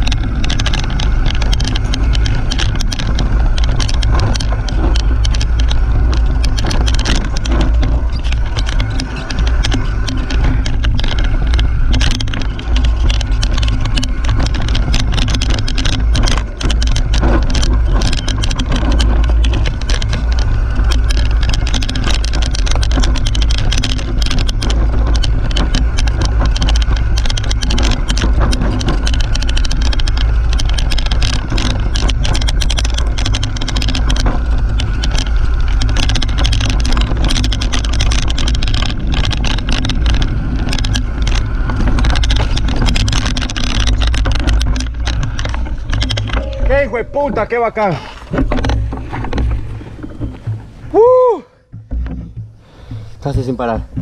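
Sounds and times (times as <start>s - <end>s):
bike clattering over rough ground: 0.0s - 54.0s
tyre rolling noise: 0.0s - 54.0s
wind rumble on microphone: 0.0s - 54.0s.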